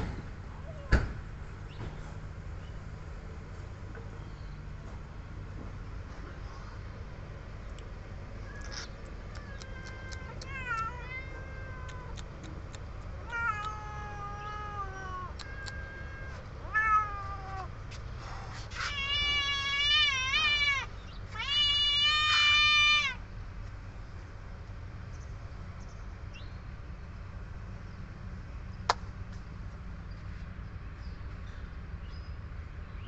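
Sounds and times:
young cats meowing: 8.4 - 17.8, 18.7 - 23.2.

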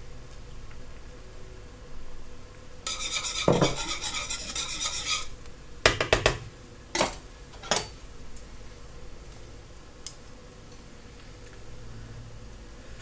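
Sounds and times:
whisk rattling in metal pot: 2.9 - 5.3.

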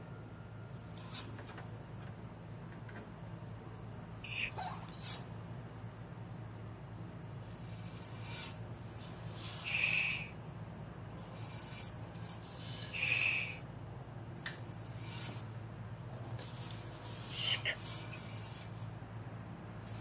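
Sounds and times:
hissing rasps on metal tubes: 4.2 - 5.3, 7.5 - 10.4, 11.2 - 13.6, 14.4 - 15.5, 16.4 - 18.9.

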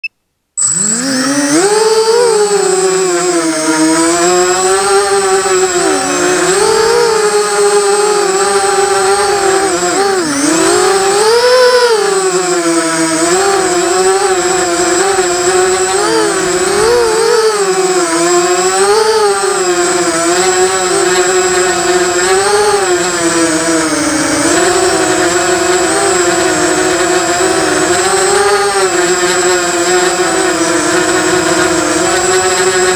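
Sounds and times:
quadcopter motors whining: 0.6 - 32.9.

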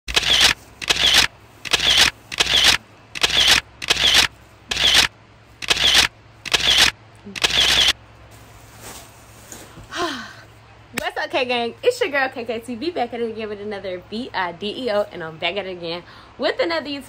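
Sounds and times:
camera shutter clicks: 0.1 - 8.0.

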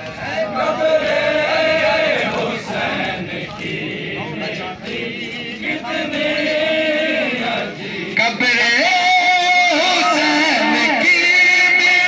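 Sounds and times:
men chanting a lament: 0.0 - 12.0.

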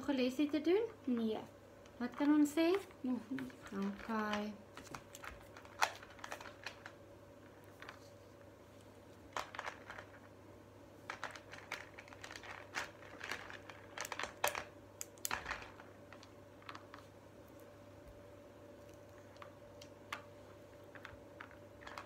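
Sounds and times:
plastic beads clicking: 11.1 - 17.0.

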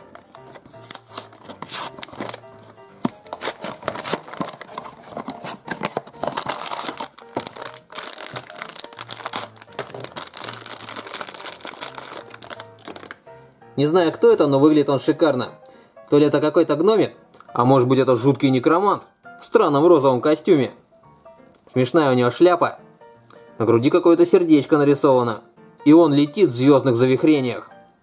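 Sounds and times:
cardboard box opening: 0.0 - 13.1
foil bag crinkling and tearing: 0.0 - 13.2
quiet background music: 0.0 - 28.0.

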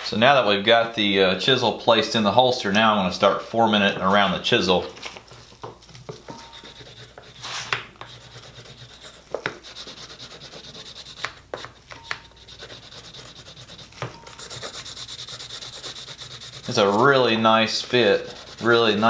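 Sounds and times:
wooden tool rubbing wet leather: 6.4 - 19.0.

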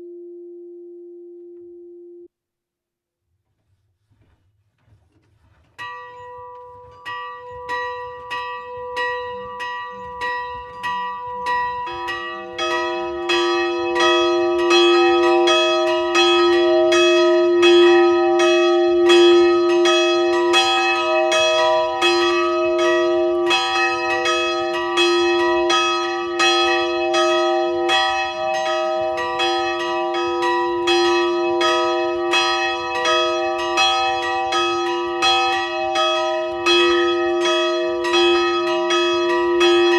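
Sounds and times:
large church bell ringing: 5.8 - 39.9
small church bell ringing: 5.8 - 39.9.

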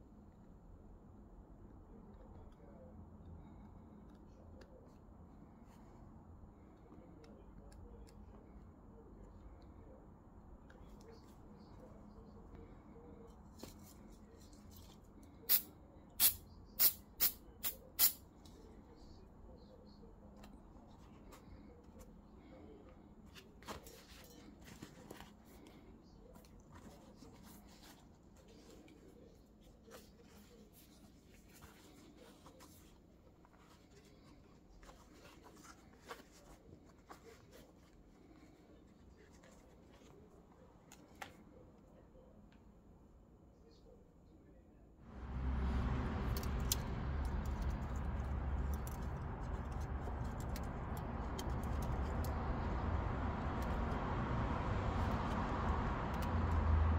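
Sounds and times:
steady low rumble: 45.1 - 56.6.

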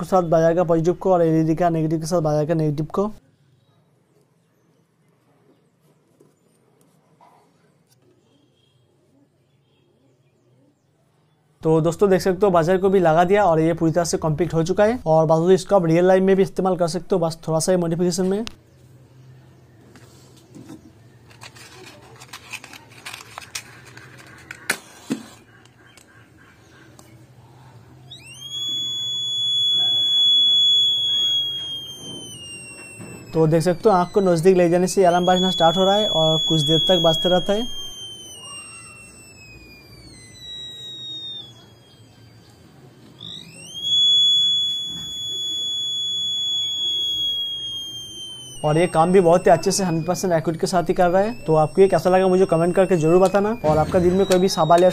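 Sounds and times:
matchbox clicks and rustles: 21.3 - 26.0
fire alarm buzzer tone: 28.1 - 54.9
sharp clicks: 31.0 - 54.9.

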